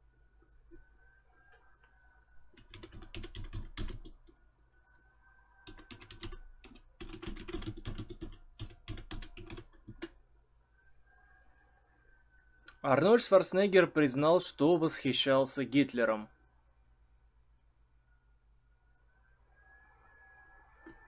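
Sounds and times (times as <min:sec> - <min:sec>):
typing on computer keyboard: 0:02.5 - 0:04.3, 0:05.6 - 0:10.2.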